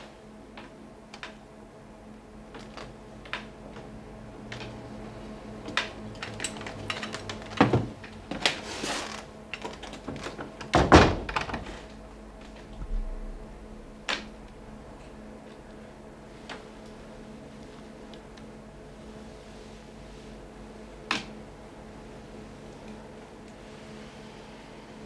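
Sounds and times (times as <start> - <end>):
heavy thumps: 12.2 - 16.1.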